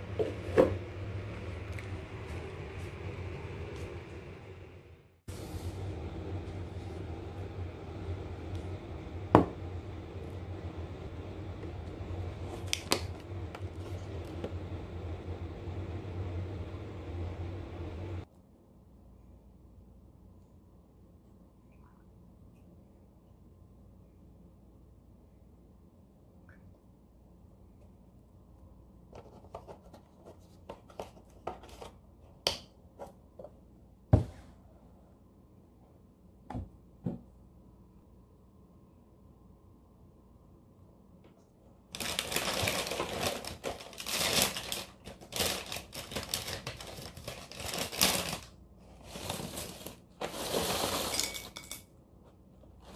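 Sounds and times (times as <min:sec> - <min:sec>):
low hum: 0:00.0 - 0:29.1.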